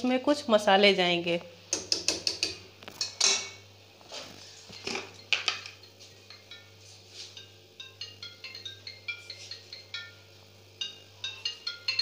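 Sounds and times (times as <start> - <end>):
faint xylophone-like music: 4.7 - 12.0.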